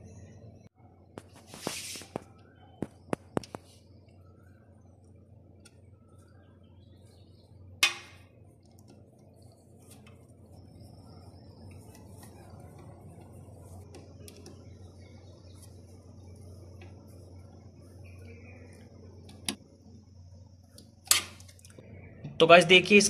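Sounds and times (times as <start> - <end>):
low hum: 0.0 - 1.4, 2.2 - 23.0.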